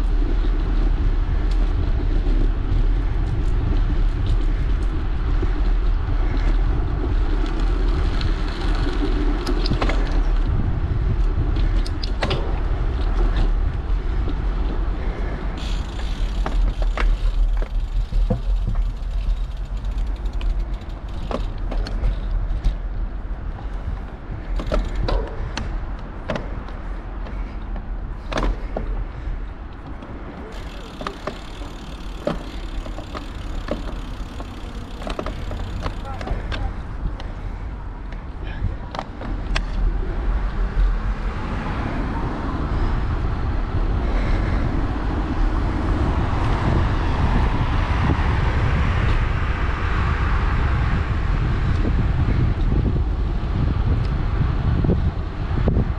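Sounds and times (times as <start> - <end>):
bicycle clicks and rattles: 0.0 - 41.6
bicycle tyre rumble: 0.0 - 55.9
wind buffeting microphone: 0.0 - 55.9.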